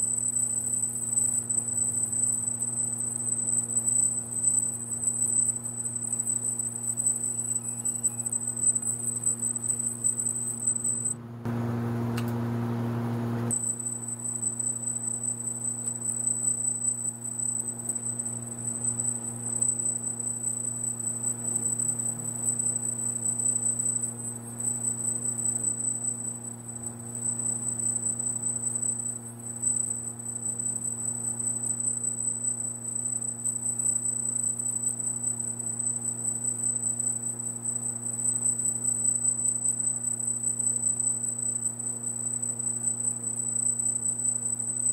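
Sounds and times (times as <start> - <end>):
high-pitched machine whine: 0.0 - 12.6, 13.4 - 44.9
low electrical hum: 0.0 - 31.3.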